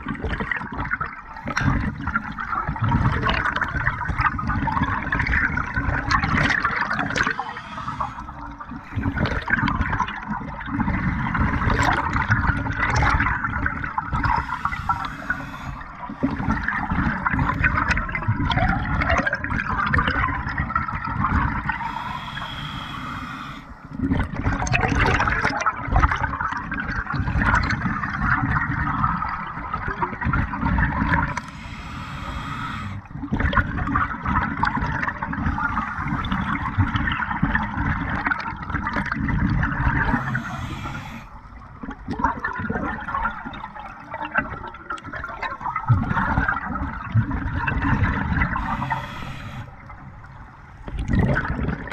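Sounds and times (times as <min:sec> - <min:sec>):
exhaled bubbles gurgling underwater: 0:00.0 - 0:51.9
regulator inhale hiss: 0:06.8 - 0:09.8, 0:14.0 - 0:17.9, 0:21.6 - 0:24.0, 0:27.2 - 0:28.4, 0:31.1 - 0:33.2, 0:35.5 - 0:37.2, 0:40.0 - 0:41.6, 0:48.2 - 0:50.8.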